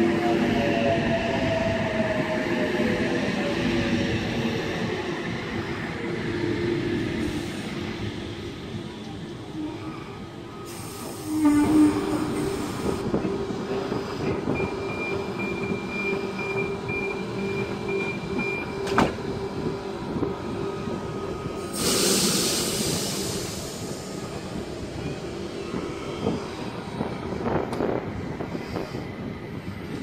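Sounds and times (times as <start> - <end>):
air hiss burst: 21.7 - 24.0.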